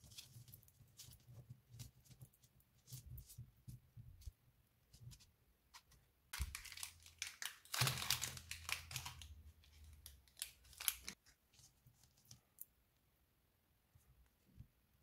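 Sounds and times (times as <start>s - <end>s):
plastic wrappers crinkling: 6.4s - 11.2s.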